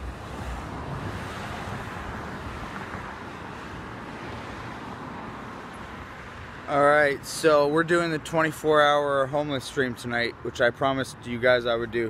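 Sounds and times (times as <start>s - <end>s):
cars passing: 0.0s - 12.0s.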